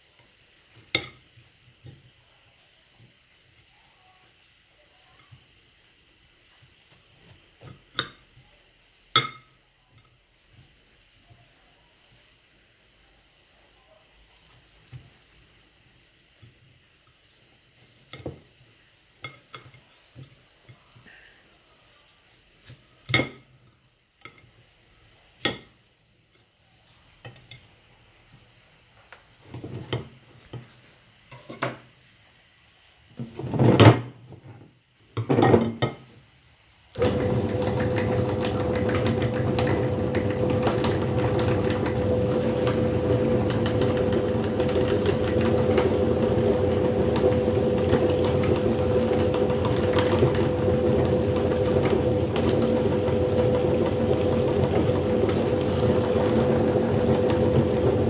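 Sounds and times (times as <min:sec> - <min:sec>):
electric meat grinder running: 0:37.0 - 0:58.0.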